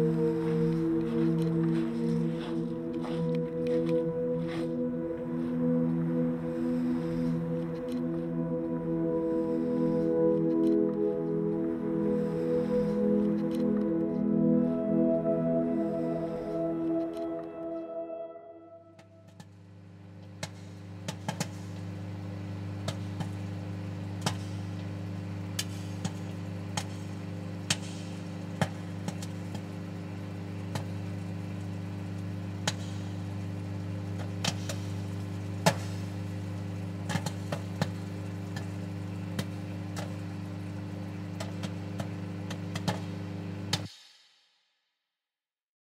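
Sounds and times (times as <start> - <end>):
microwave oven humming: 26.3 - 43.8.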